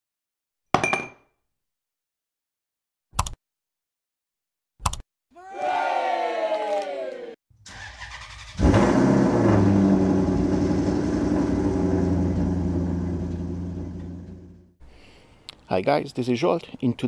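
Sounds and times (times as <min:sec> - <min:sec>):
car engine starting and running: 0:07.6 - 0:14.8.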